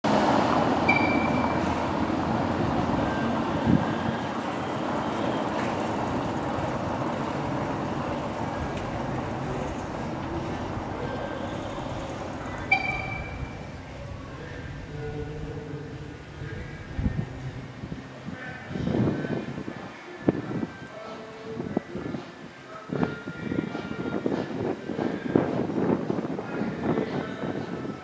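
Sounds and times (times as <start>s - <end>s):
car tyres on cobblestones: 0.0s - 19.7s
brief high ring: 0.9s - 1.8s, 12.6s - 13.7s.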